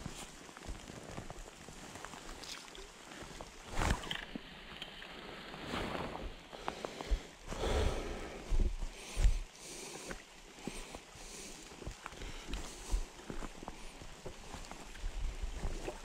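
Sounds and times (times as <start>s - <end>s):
river water sloshing and splashing: 1.4s - 6.6s.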